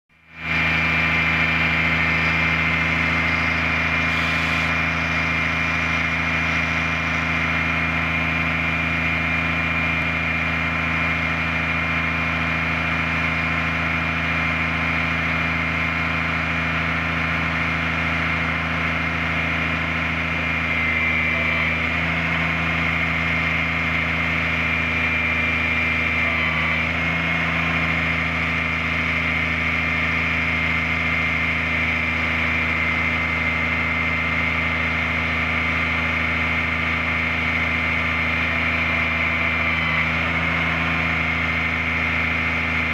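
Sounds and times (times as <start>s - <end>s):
high whine: 0.2s - 27.0s
diesel engine idling: 0.2s - 42.9s.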